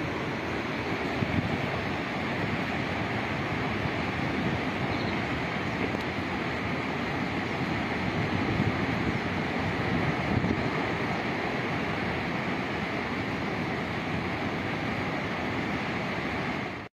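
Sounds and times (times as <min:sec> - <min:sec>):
flood torrent roaring: 0:00.0 - 0:16.9.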